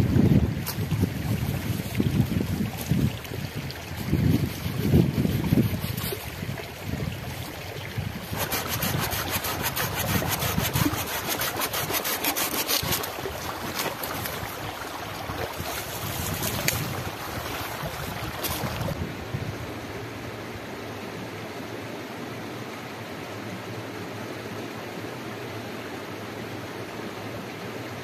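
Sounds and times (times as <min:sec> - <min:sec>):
stream rushing: 0:00.0 - 0:28.0
hand saw cutting branch: 0:08.3 - 0:14.1.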